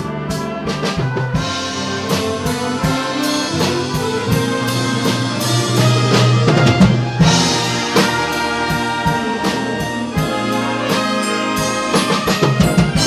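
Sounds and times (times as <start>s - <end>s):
brass: 0.0s - 13.0s
concert band playing: 0.0s - 13.0s
steady drum beat: 0.0s - 13.0s.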